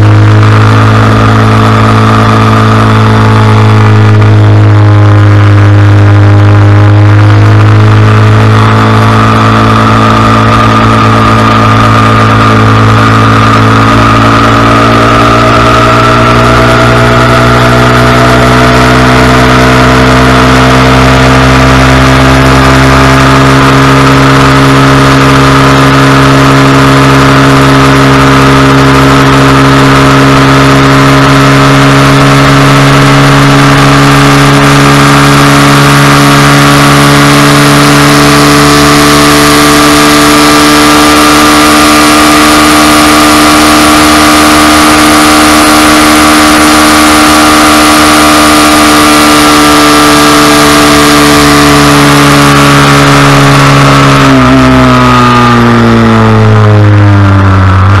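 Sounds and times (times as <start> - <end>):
wind rush: 0.0 - 21.2
motorcycle engine at high revs: 0.0 - 58.0.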